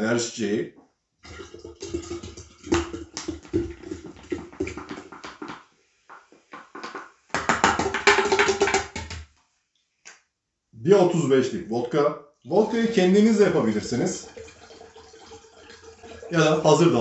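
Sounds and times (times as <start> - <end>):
drink pouring into pitcher: 1.2 - 5.2, 12.6 - 17.0
ringing tone of filling pitcher: 12.8 - 17.0.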